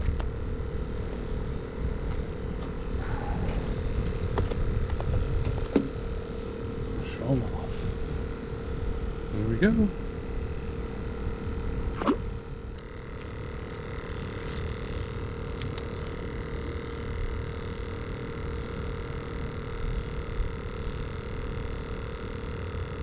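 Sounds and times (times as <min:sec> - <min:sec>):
wind rumbling on microphone: 0:00.0 - 0:07.0
faint steady hum: 0:00.0 - 0:23.0.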